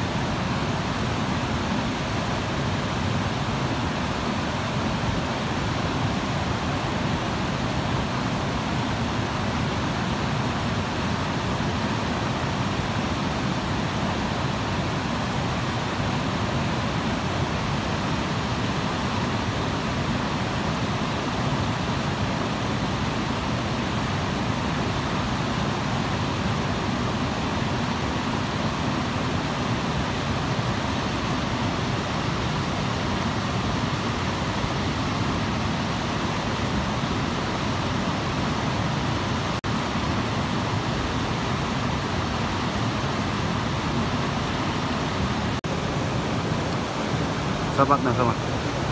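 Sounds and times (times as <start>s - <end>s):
river rushing over boulders: 0.0s - 48.9s.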